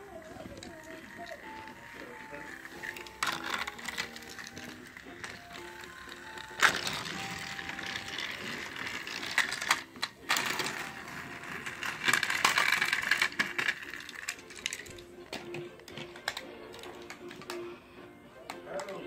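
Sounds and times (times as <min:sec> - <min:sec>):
toy train motor whirring: 0:00.0 - 0:15.1
toy train clicks and knocks: 0:00.3 - 0:17.7, 0:18.4 - 0:19.0.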